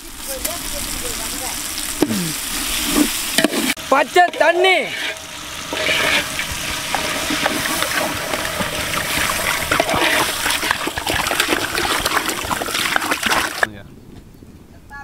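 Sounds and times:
water pouring into a metal pot: 4.4 - 13.7.

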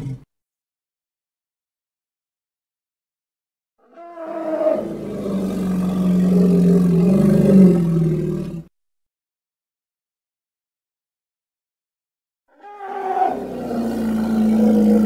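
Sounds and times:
hippopotamus roar: 3.8 - 8.7, 12.6 - 15.0.

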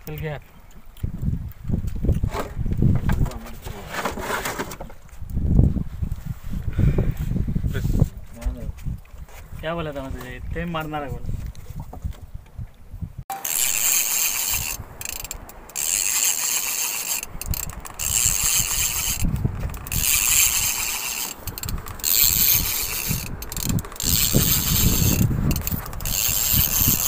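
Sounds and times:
fishing reel ratcheting whir: 13.3 - 27.0.

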